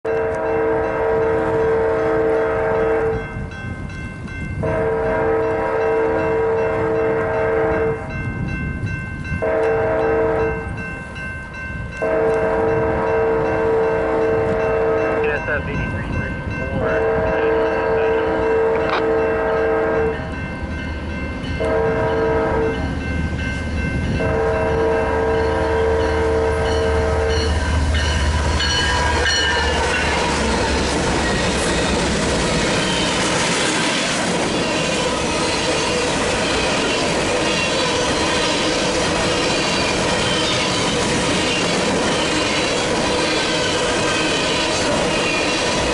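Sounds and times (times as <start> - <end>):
locomotive air horn blasts: 0.1 - 3.2, 4.6 - 8.1, 9.4 - 10.7, 12.0 - 15.5, 16.7 - 20.4, 21.6 - 22.8, 24.2 - 27.6
train rumbling: 0.1 - 45.9
electronic crossing bell ringing: 5.4 - 30.2.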